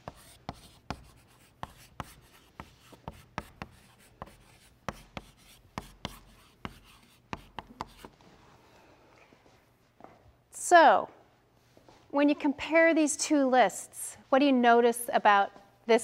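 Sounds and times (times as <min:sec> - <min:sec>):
chalk tapping on blackboard: 0:00.0 - 0:08.1
chalk scratching: 0:00.0 - 0:08.2.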